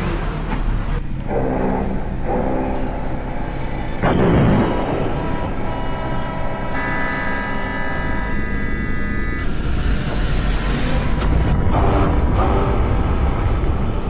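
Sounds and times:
steady traffic rumble: 0.0s - 1.3s.

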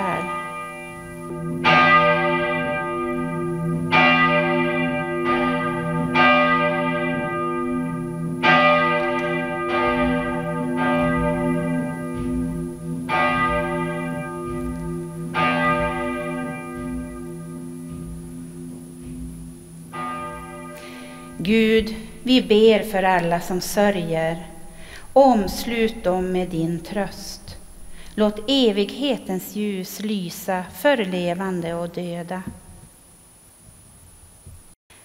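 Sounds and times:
church bell tolling: 0.0s - 29.2s
steady low hum: 9.2s - 29.9s.

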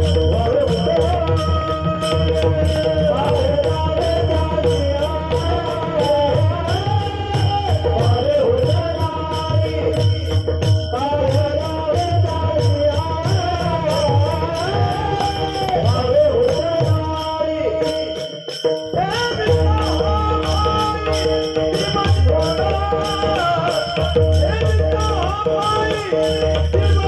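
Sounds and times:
person singing: 0.0s - 18.1s.

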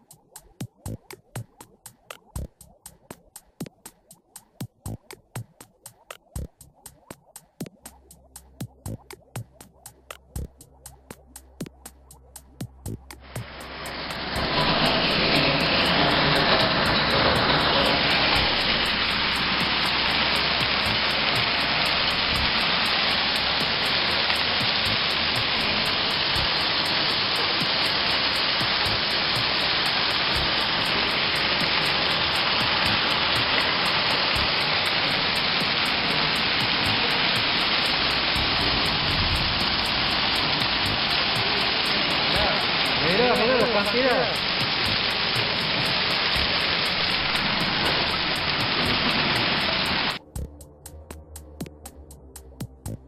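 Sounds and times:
wind: 13.2s - 50.2s
hail pelting down: 13.3s - 50.2s.

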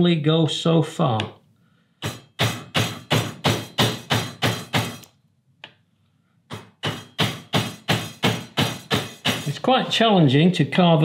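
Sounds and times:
mallet striking gouge handle: 2.0s - 5.1s, 6.5s - 9.9s.

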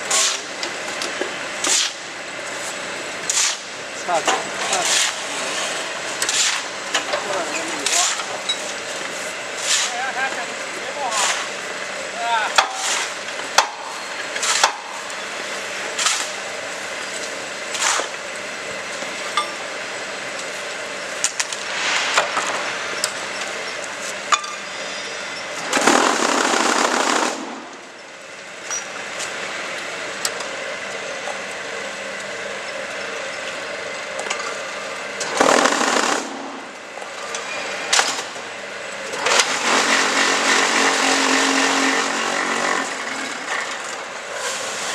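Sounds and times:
steady machine noise: 0.2s - 44.9s
loud bursts of machine noise: 19.3s - 30.9s, 34.7s - 44.9s.

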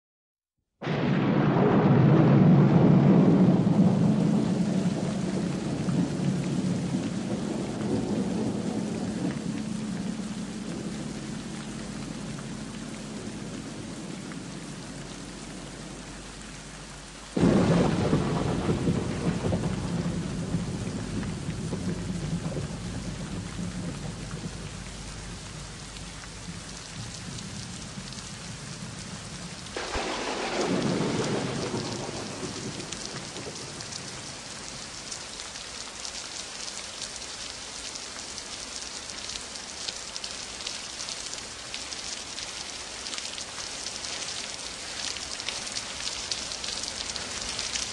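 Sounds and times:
thunder rumbling: 0.8s - 16.2s, 17.4s - 35.1s
steady rain: 0.8s - 47.9s.

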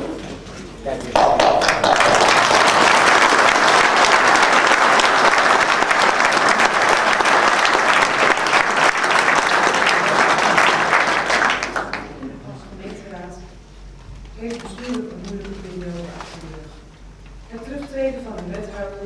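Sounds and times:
audience applauding: 1.1s - 12.2s.

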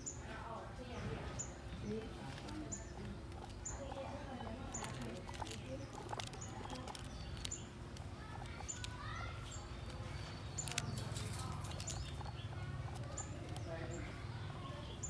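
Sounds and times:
guinea pigs chewing crunchily: 1.2s - 15.0s.

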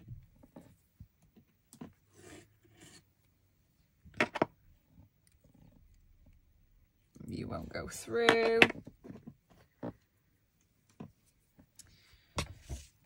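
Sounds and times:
rustling of craft materials: 7.0s - 13.0s.

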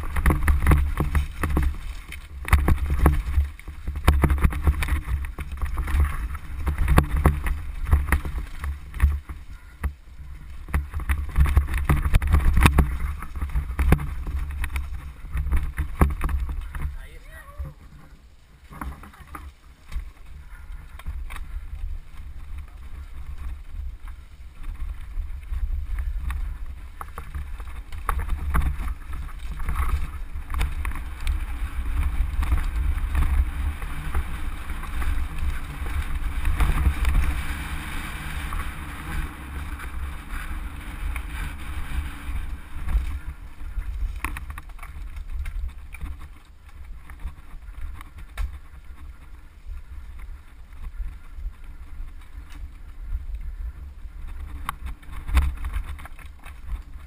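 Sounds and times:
bike tyres clattering over stones: 0.0s - 57.0s
constant low rumble: 0.0s - 57.0s
wind buffeting microphone: 18.7s - 57.0s.

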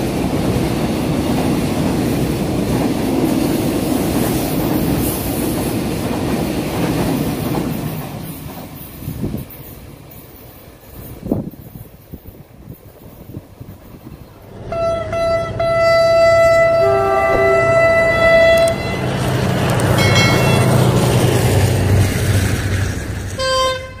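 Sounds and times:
train rumbling: 0.0s - 24.0s
locomotive horn blasts: 14.6s - 20.9s, 23.3s - 24.0s.

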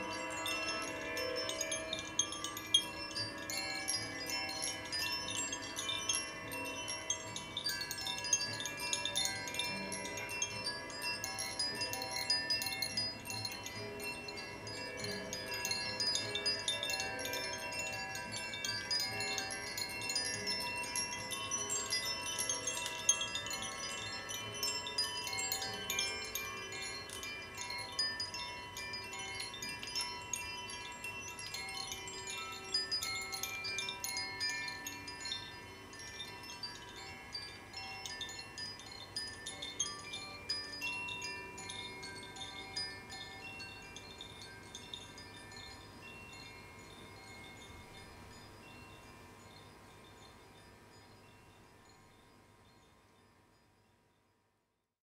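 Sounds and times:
wind chimes ringing: 0.0s - 54.4s.

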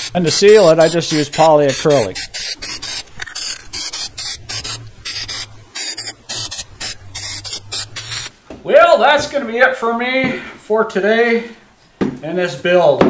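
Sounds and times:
aerosol spray hissing bursts: 0.0s - 8.3s.

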